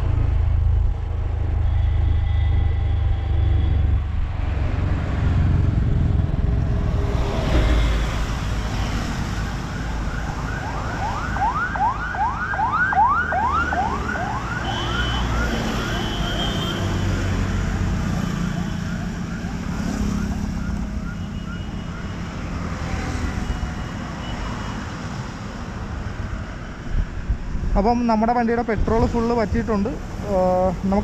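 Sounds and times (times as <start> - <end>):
scooter road rumble: 0.0 - 10.0
wind: 0.0 - 31.0
siren yelping: 9.5 - 16.2, 18.1 - 23.2.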